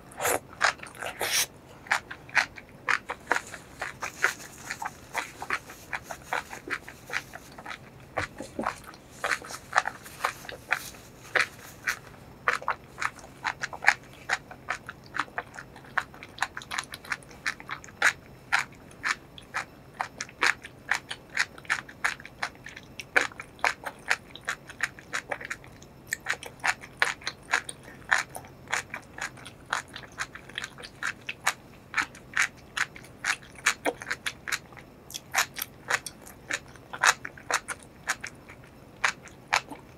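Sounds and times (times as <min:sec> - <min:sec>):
chewing food with wet mouth clicks: 0:00.0 - 0:39.9.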